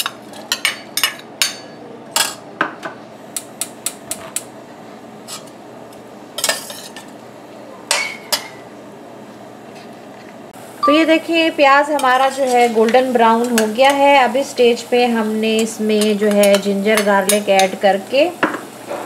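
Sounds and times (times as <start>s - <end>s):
metal spoon clinking on saucepan: 15.6s - 17.8s.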